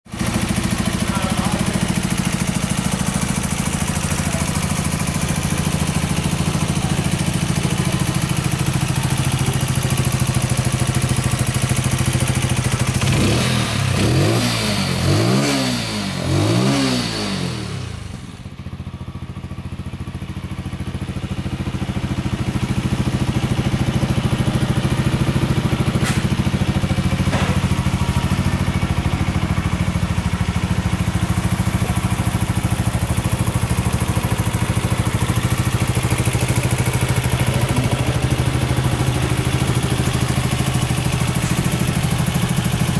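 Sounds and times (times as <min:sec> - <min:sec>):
motorcycle engine idling and revving: 0:00.0 - 0:42.9.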